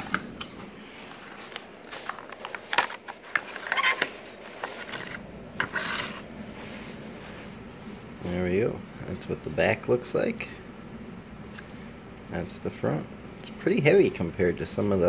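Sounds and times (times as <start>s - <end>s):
cardboard rustle: 1.0s - 8.0s
cardboard box rubbing and scraping: 4.6s - 7.5s.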